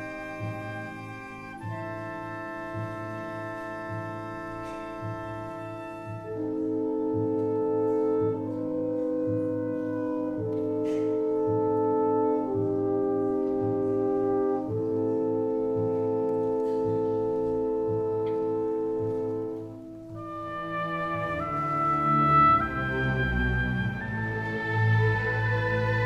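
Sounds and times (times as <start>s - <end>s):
symphony orchestra playing slowly: 0.0s - 26.0s.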